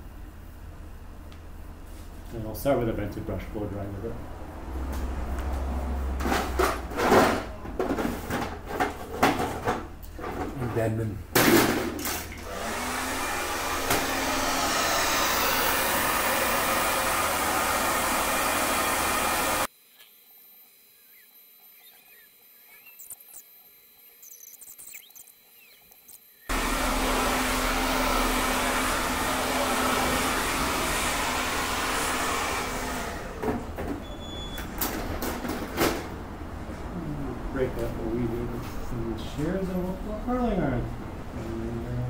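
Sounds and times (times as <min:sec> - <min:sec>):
hair dryer blowing: 0:12.3 - 0:19.7, 0:26.5 - 0:33.8.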